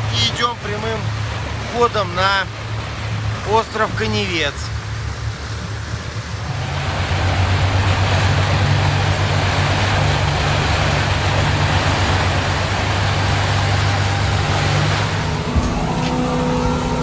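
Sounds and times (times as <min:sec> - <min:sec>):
motorboat engine drone: 0:00.0 - 0:17.0.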